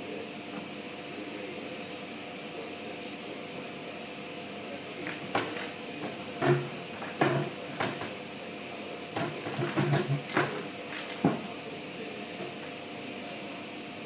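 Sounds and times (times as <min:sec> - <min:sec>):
room hum: 0:00.0 - 0:14.0.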